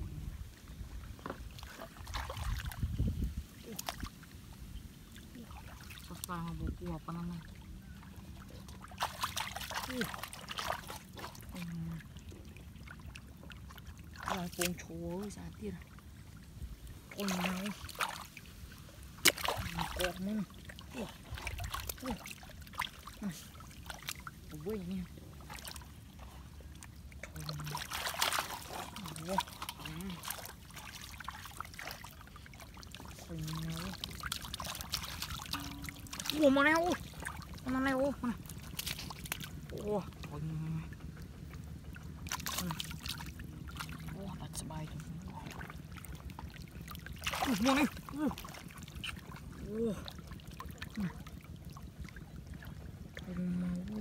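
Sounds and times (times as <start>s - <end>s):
water splashing and pouring: 1.5s - 4.2s, 8.3s - 15.8s, 17.0s - 40.4s, 41.9s - 53.1s
low vocal sounds: 47.4s - 50.2s, 53.2s - 54.0s.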